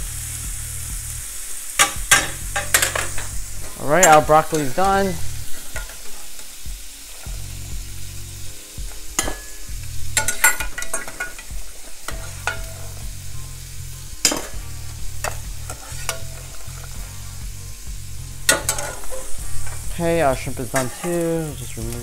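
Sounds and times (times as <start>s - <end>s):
shrimp sizzling in oil: 0.0s - 22.0s
low hum: 12.1s - 20.6s.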